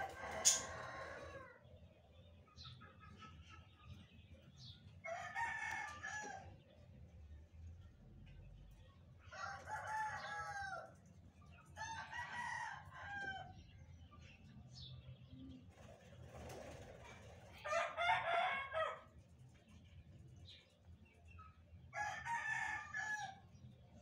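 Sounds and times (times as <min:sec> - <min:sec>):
rooster crowing: 0:00.0 - 0:01.5.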